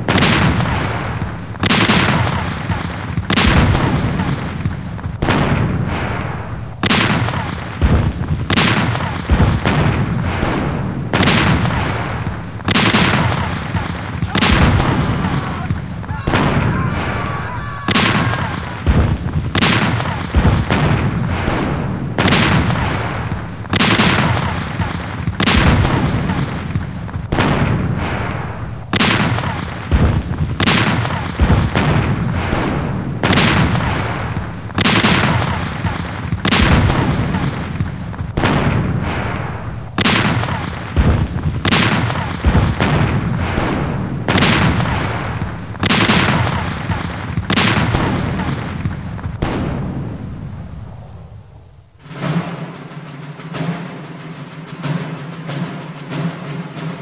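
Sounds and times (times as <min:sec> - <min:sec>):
cannon booms: 0:03.2 - 0:08.6, 0:14.2 - 0:24.6, 0:25.4 - 0:30.8, 0:36.4 - 0:41.8, 0:42.4 - 0:50.9.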